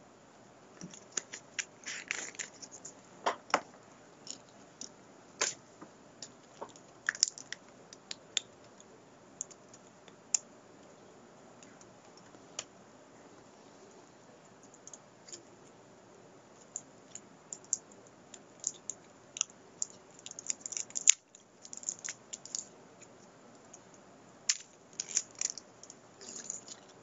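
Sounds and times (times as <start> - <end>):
small objects clicking and tapping: 6.2 - 9.8, 16.6 - 22.7.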